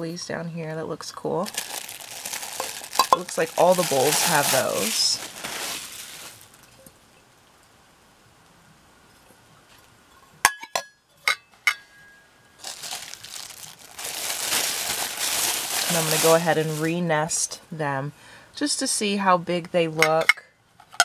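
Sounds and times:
plastic wrap crinkling: 1.4 - 6.9, 12.6 - 17.1
metal bowls clinking: 2.5 - 3.6, 10.5 - 12.2
metallic ring: 10.5 - 12.6.

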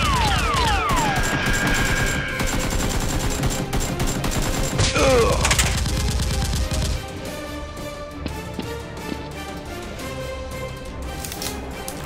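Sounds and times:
rapid automatic gunfire: 0.0 - 7.1.

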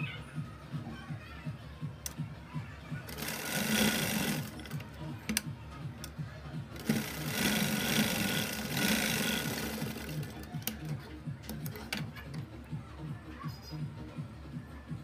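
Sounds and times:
sewing machine stitching: 3.1 - 4.8, 6.8 - 10.8.

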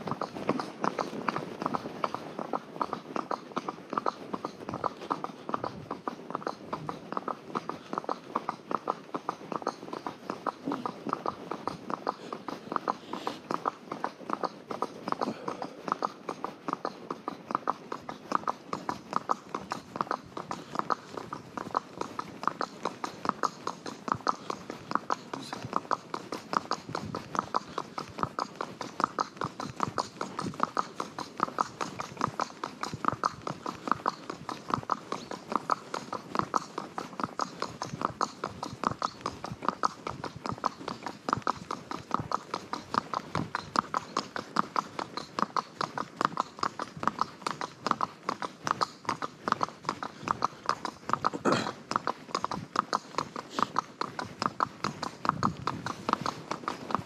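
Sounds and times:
horse hooves clip-clopping: 0.0 - 57.0.

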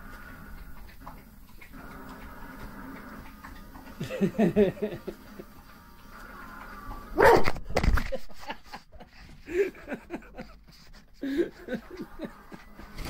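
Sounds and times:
dog barking and yelping: 7.1 - 7.6.

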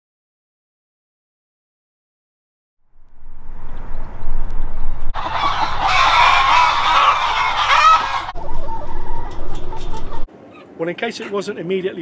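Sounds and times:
hens clucking: 5.2 - 11.4.

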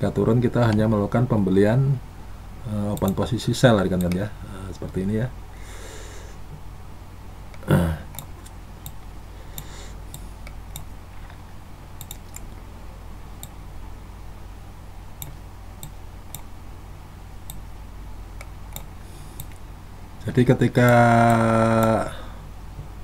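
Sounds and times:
low steady hum: 0.0 - 23.0
computer mouse clicks: 2.9 - 3.2, 4.0 - 4.2, 7.5 - 11.4, 12.0 - 12.6, 13.4 - 13.6, 15.2 - 16.5, 18.4 - 19.6.

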